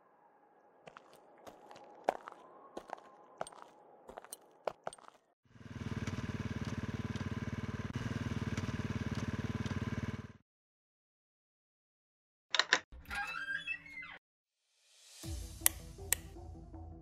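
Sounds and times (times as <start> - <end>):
motorcycle engine running: 5.5 - 10.4.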